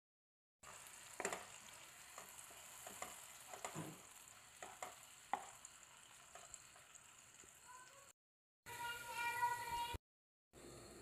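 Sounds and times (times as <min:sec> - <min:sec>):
garlic sizzling in oil: 0:00.6 - 0:09.7
spatula scraping and tapping pan: 0:00.7 - 0:07.5.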